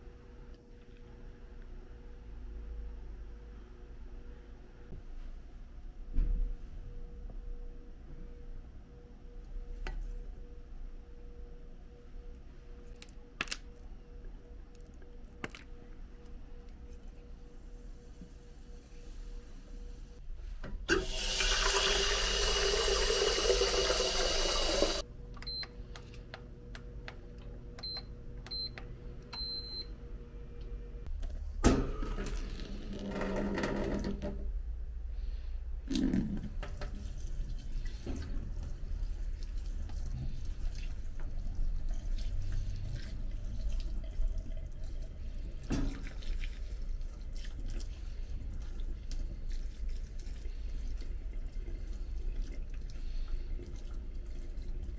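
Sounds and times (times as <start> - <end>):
water running from a tap: 20.9 - 25.0.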